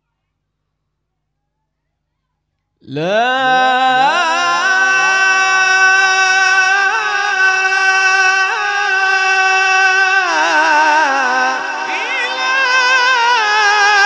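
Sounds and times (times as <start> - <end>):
man reciting melodically: 2.8 - 14.0.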